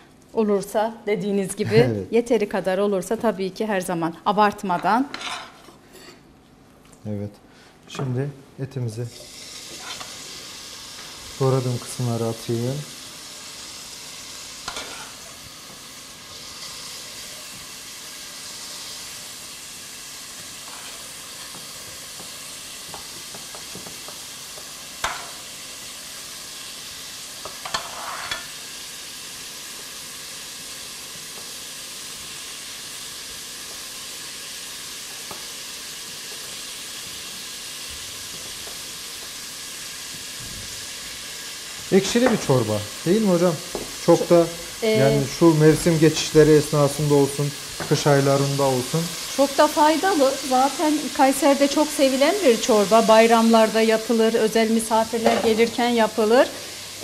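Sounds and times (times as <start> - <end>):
beef sizzling in hot oil: 8.9 - 57.0.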